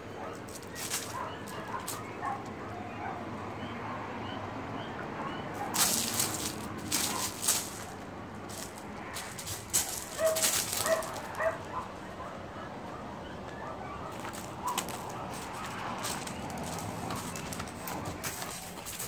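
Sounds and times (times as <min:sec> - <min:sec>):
dog high-pitched calls: 0:00.1 - 0:07.4, 0:10.1 - 0:18.6
dog paws crunching on gravel: 0:00.3 - 0:02.6, 0:05.5 - 0:12.0, 0:13.4 - 0:19.0.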